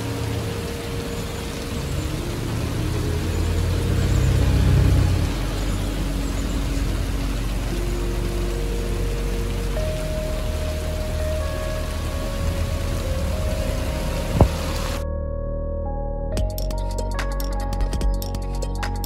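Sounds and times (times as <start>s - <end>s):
rain falling: 0.0s - 15.0s
vehicle passing with low rumble: 0.0s - 15.1s.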